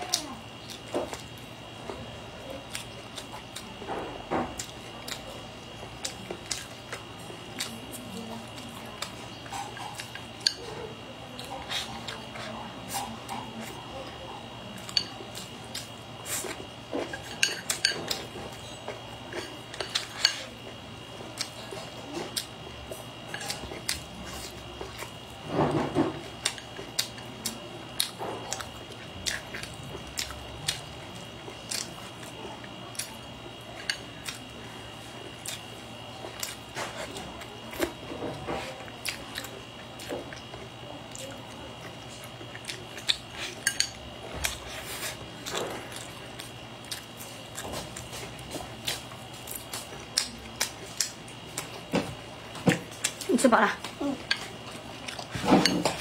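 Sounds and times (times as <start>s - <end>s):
chewing: 0.0s - 56.0s
faint hum: 0.0s - 56.0s.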